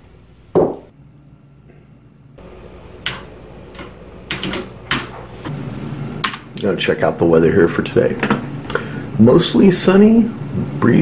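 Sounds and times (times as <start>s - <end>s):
keyboard keys clicking: 3.0s - 5.1s.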